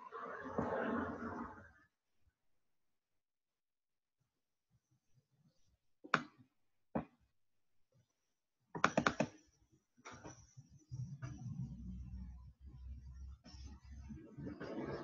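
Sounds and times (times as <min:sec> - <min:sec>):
computer mouse clicks: 0:08.8 - 0:09.5.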